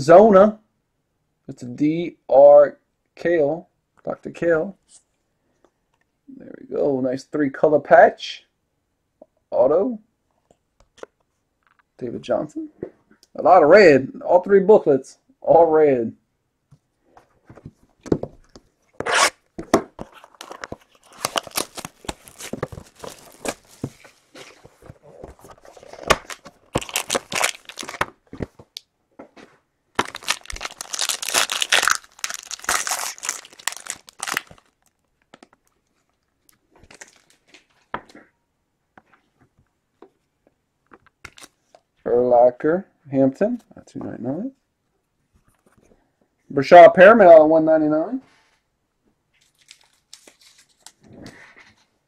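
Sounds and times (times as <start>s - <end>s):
foil wrapper tearing and crinkling: 20.4s - 23.9s, 25.9s - 28.1s, 30.0s - 34.9s, 49.4s - 51.0s.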